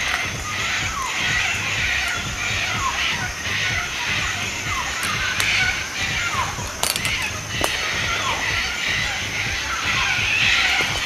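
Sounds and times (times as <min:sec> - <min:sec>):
cockatoos screeching: 0:00.0 - 0:11.0.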